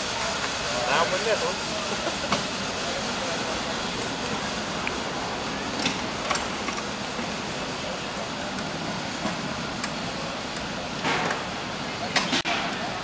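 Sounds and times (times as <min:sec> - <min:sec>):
wheels running on rail: 0:00.0 - 0:13.0
wheels clicking over rail joints: 0:04.2 - 0:13.0.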